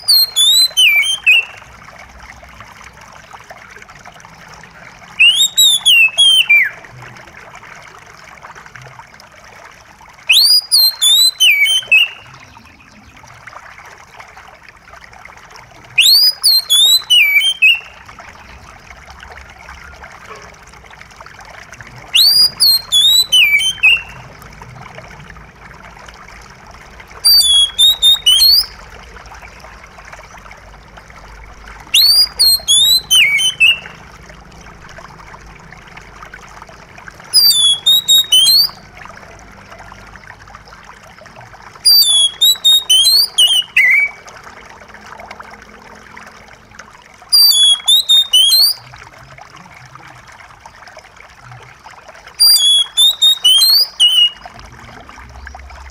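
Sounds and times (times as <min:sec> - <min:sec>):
bird whistling song: 0:00.0 - 0:01.6, 0:05.1 - 0:06.8, 0:10.3 - 0:12.9, 0:16.0 - 0:18.5, 0:22.1 - 0:24.2, 0:27.2 - 0:28.8, 0:31.9 - 0:34.0, 0:37.3 - 0:38.8, 0:41.8 - 0:44.2, 0:47.3 - 0:48.8, 0:52.4 - 0:54.5
trickle of running water: 0:00.0 - 0:55.9.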